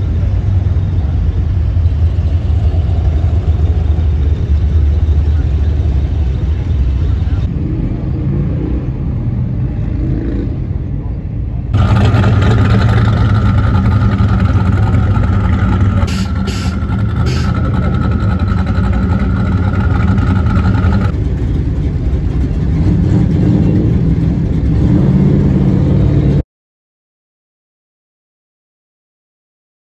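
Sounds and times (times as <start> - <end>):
car engines running low: 0.0 - 8.1, 11.6 - 26.4
steady high tone: 11.8 - 21.1.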